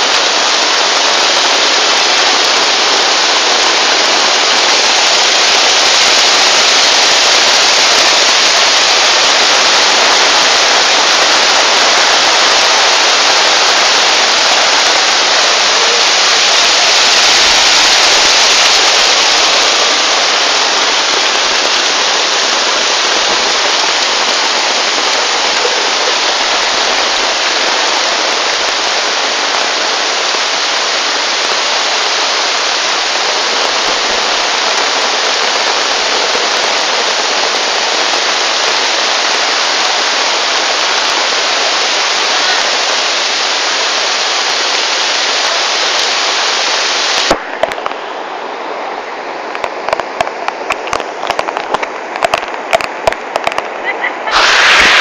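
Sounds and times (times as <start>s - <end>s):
floodwater rushing: 0.0s - 55.0s
heavy rain: 0.0s - 55.0s.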